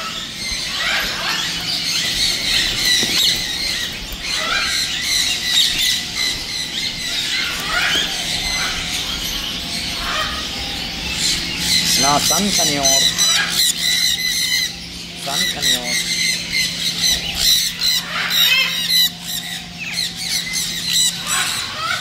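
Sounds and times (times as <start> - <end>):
birds chirping: 0.0 - 22.0
squeaky parrot calls: 11.2 - 22.0.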